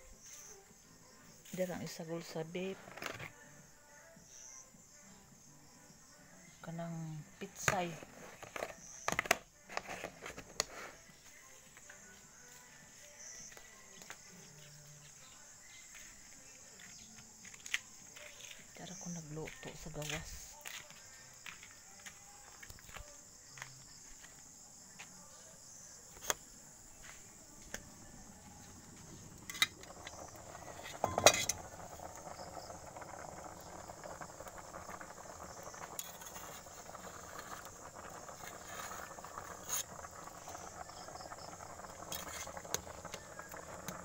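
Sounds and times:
insects chirring: 0.0 - 44.0
pot of water boiling: 7.2 - 10.8, 27.9 - 44.0.

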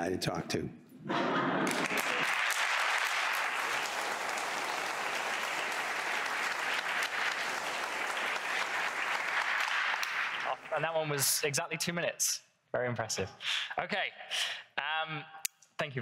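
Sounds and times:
audience applauding: 1.5 - 11.1.

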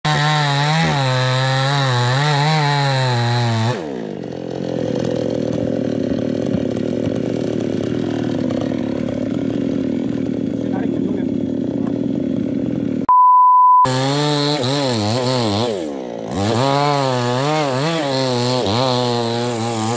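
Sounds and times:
chainsaw cutting wood: 0.0 - 13.1, 13.9 - 19.9.

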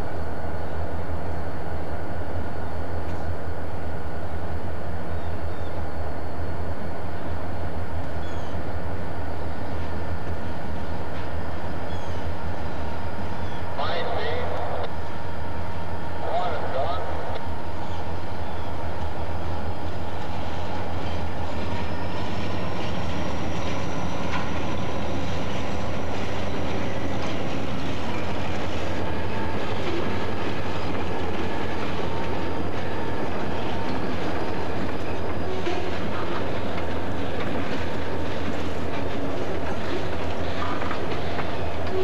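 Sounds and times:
diesel locomotive engine rumbling: 0.0 - 42.0
wheels clacking over rail joints: 20.1 - 42.0.

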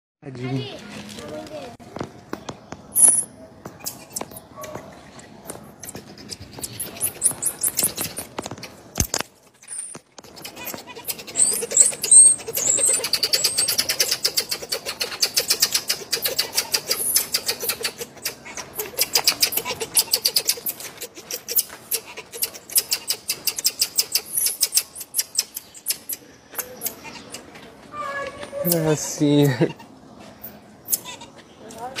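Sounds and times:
marmosets chirping: 2.9 - 8.8, 9.6 - 27.5.

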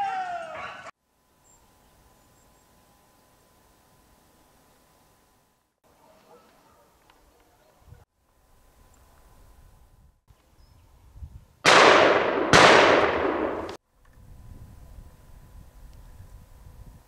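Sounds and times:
rifle shots with echo: 11.6 - 13.8.

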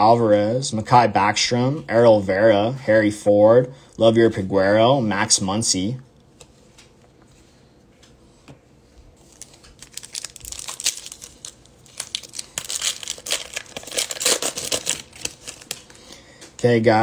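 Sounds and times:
foil wrapper tearing and crinkling: 9.3 - 16.0.

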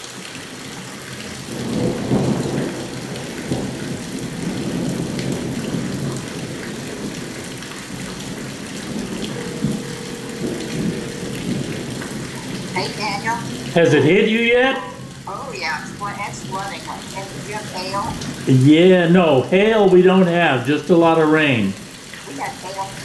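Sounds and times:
heavy rain: 0.0 - 23.0
thunder rumbling: 1.3 - 20.5.

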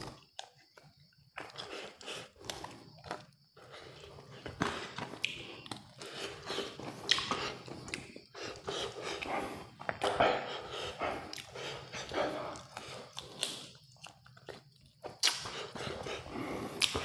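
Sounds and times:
person chewing food: 0.0 - 17.0
mouth clicks: 15.2 - 17.0.

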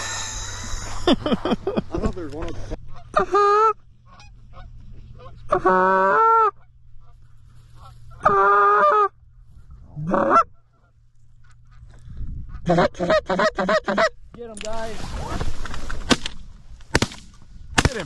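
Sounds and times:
goose call honks: 2.9 - 7.2, 7.8 - 9.2, 10.0 - 11.8, 12.5 - 14.2.

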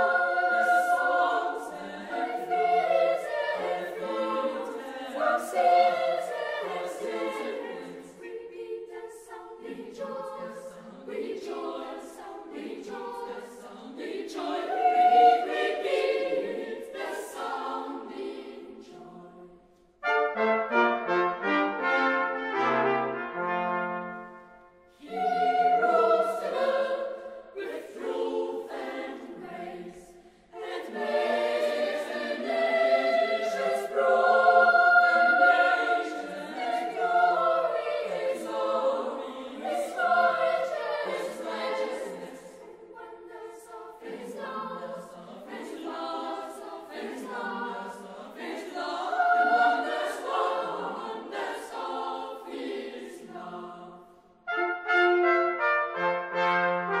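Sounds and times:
boys' choir singing: 0.0 - 19.7, 22.4 - 54.3
orchestral accompaniment: 20.0 - 26.8, 54.4 - 57.0
brass ensemble: 20.0 - 29.1, 54.4 - 57.0.

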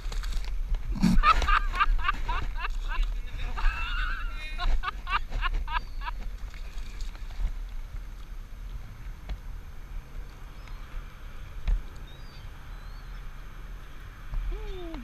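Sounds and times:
water moving around kayak: 0.0 - 13.2
short chirping bird calls: 12.0 - 13.3.

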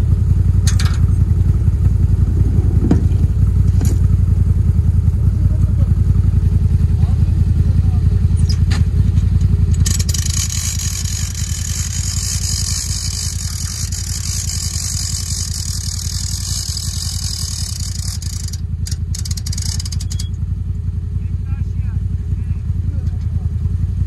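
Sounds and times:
utv engine idling: 0.0 - 24.0.

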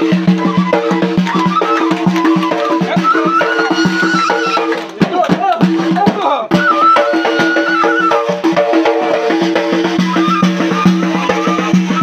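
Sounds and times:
reed flute melody: 0.0 - 4.8, 6.5 - 8.6, 9.3 - 12.0
frame drum beats: 0.0 - 12.0.

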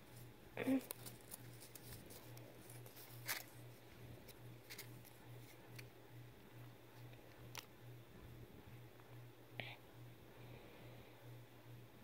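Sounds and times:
paper leaflet crackling: 0.8 - 5.8.

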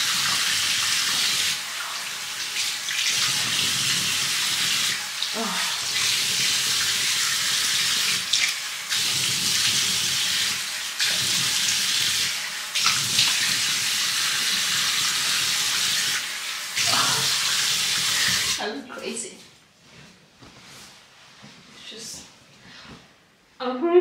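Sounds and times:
tap water running into sink: 0.0 - 18.6
water splashing on face: 16.8 - 18.6.

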